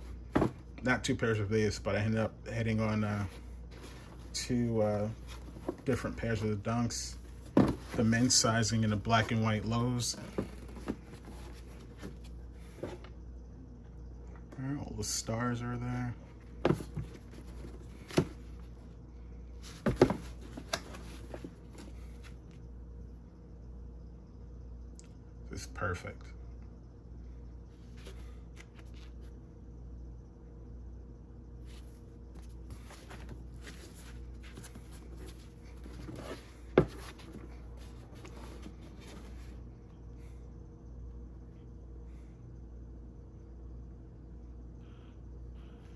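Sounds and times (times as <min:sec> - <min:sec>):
sneakers knocking and rubbing: 0:00.0 - 0:00.7, 0:03.2 - 0:13.1, 0:16.6 - 0:18.8, 0:19.7 - 0:22.1, 0:31.7 - 0:39.5.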